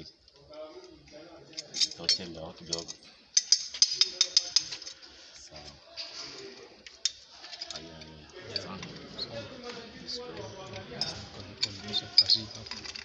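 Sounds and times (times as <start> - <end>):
pipe wrench clinking on metal: 1.5 - 5.0, 10.8 - 13.0.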